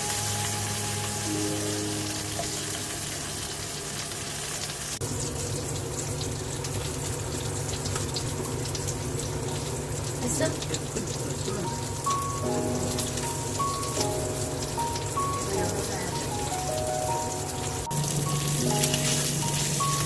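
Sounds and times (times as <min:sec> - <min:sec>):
background music: 0:00.0 - 0:03.6, 0:11.5 - 0:20.0
fish sizzling in oil: 0:00.0 - 0:20.0.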